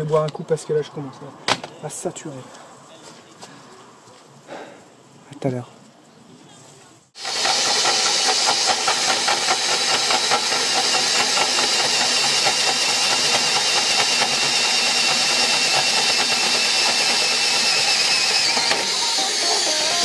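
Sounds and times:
hole saw grinding through steel: 7.2 - 20.0.

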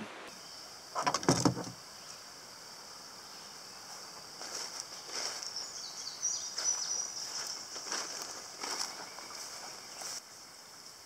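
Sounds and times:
insect drone: 0.0 - 11.0
footsteps through grass: 4.0 - 10.2
bird chirps: 4.9 - 7.6.

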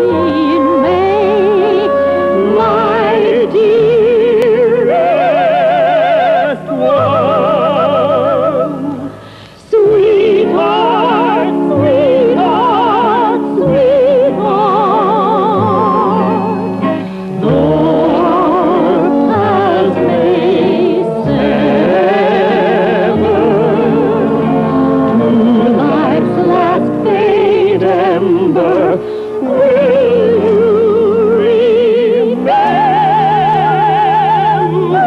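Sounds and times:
operatic singing with accompaniment: 0.0 - 35.0.

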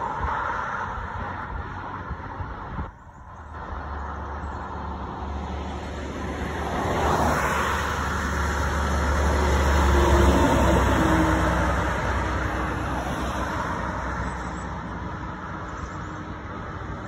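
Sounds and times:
car passing close by: 3.6 - 17.0.

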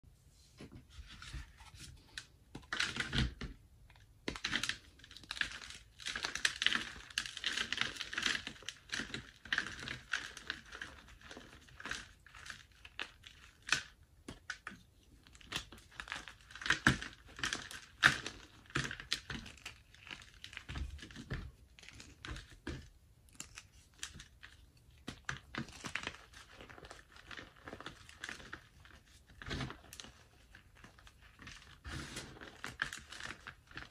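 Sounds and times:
chalk crunching and crackling: 15.3 - 33.9.

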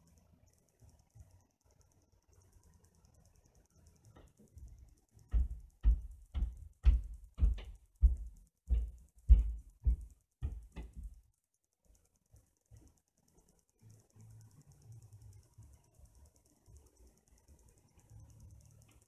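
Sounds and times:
dull thumps: 5.3 - 11.2.

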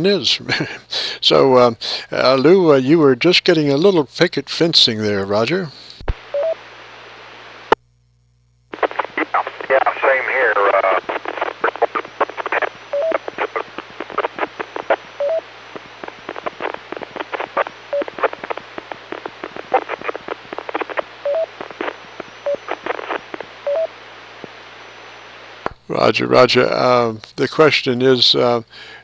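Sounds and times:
radio static hiss: 0.0 - 29.0
crackling clicks and pops: 7.7 - 24.6, 25.6 - 25.8.

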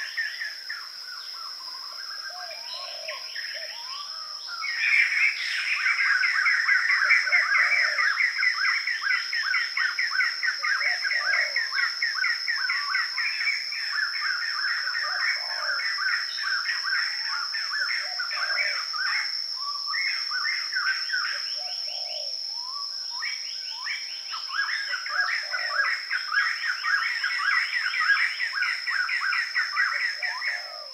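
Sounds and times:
birds chirping: 0.0 - 9.3
high-pitched insect drone: 0.0 - 30.9.

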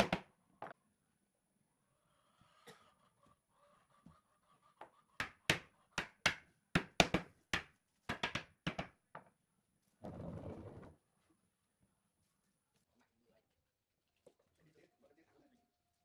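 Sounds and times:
wooden mallet knocking on wood: 5.2 - 9.3.

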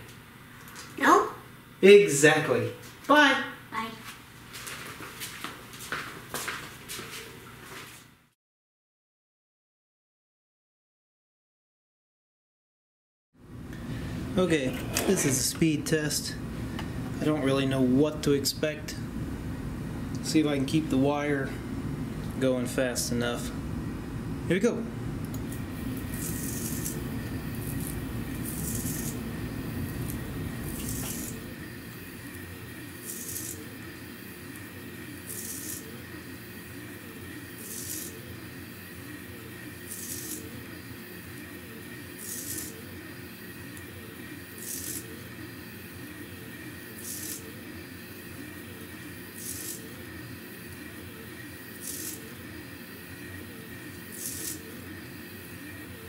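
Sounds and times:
stepper motor whine: 13.5 - 56.0
short hiss of winding head: 54.1 - 54.6.

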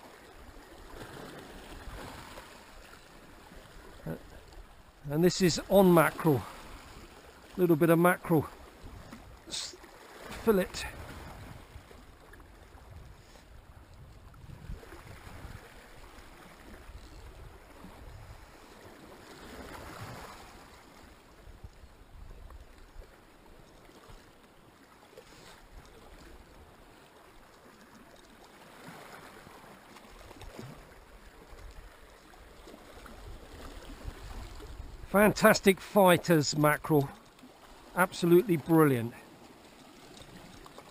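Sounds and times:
waves lapping against rocks: 0.0 - 40.9
wind rumble on microphone: 10.9 - 15.8.

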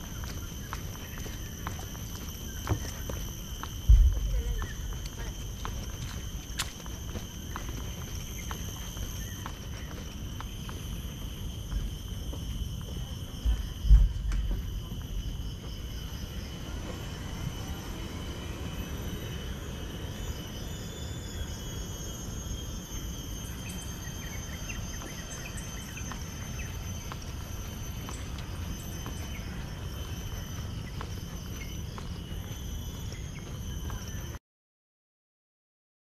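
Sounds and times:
insects chirring: 0.0 - 34.4
heavy thump: 3.9 - 4.4
low rumble: 3.9 - 5.3.

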